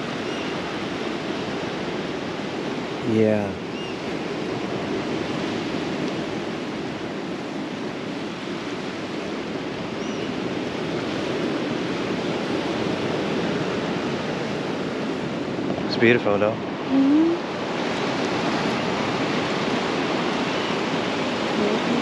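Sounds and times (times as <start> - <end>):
ocean surf washing ashore: 0.0 - 22.0.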